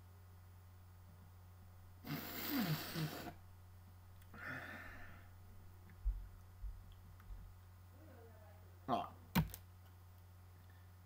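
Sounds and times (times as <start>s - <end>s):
steady low hum: 0.0s - 11.0s
man sighing: 4.3s - 5.2s.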